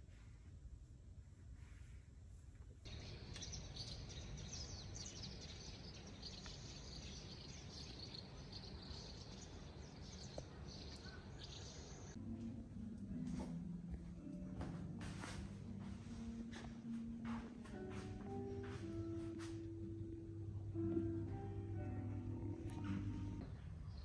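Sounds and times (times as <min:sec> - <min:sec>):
small birds chirping: 0:02.9 - 0:12.2
low steady rumble: 0:19.8 - 0:24.0.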